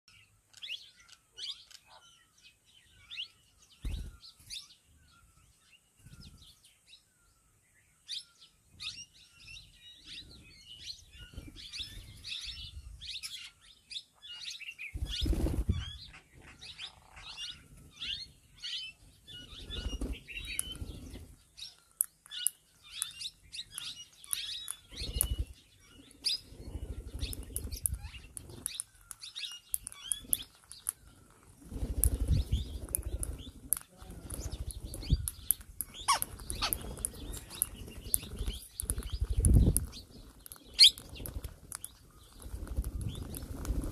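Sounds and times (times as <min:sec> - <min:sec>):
parakeets chirping: 0:08.8 - 0:43.9
wings flapping: 0:15.0 - 0:16.5, 0:19.3 - 0:21.4, 0:29.8 - 0:43.9.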